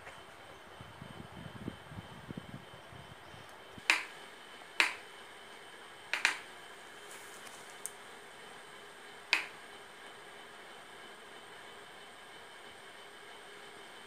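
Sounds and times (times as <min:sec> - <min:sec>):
sharp clicks: 0:03.8 - 0:04.1, 0:04.8 - 0:05.0, 0:06.1 - 0:06.4, 0:09.3 - 0:09.6.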